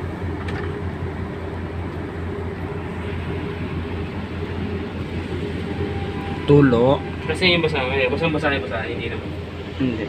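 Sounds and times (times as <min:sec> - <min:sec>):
machinery drone: 0:00.0 - 0:10.0
rushing noise: 0:02.4 - 0:10.0.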